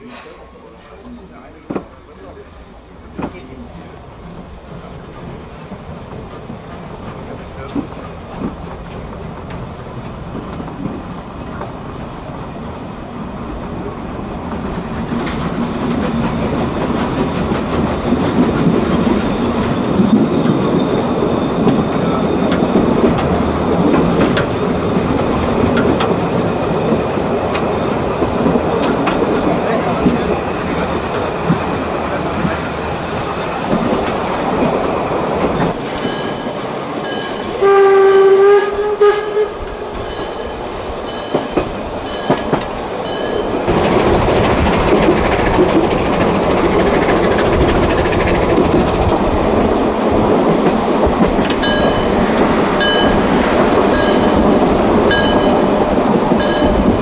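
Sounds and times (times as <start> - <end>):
steam train wheels on rails: 0.0 - 57.0
steam locomotive whistle: 37.4 - 40.0.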